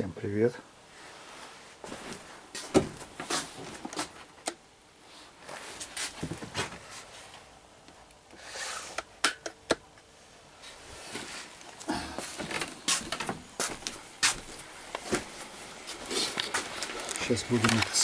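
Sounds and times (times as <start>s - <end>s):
footsteps on wooden floor: 1.8s - 4.1s, 12.1s - 16.8s
handling rustles: 10.6s - 18.0s.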